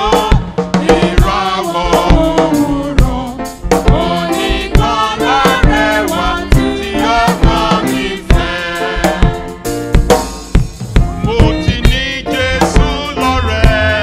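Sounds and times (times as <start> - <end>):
choir singing: 0.0 - 9.7, 11.4 - 14.0
drums steady beat: 0.0 - 14.0
man singing into microphone: 11.2 - 14.0.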